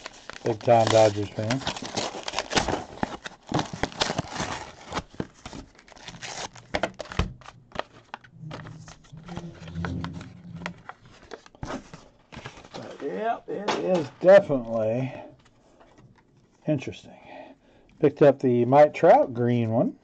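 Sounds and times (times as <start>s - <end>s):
cards and sleeves rustling: 0.0s - 16.7s
low hum: 8.3s - 11.4s.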